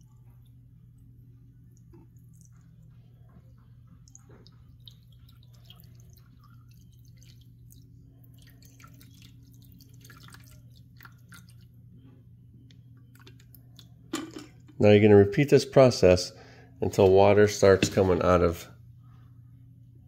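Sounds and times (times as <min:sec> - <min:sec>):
water trickling into reservoir: 0:00.0 - 0:11.8, 0:13.0 - 0:14.0
steady low hum: 0:00.0 - 0:20.0.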